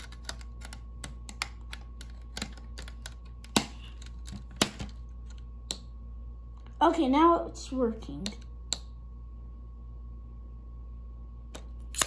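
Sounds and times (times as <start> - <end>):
plastic parts clicking and tapping: 0.0 - 5.0.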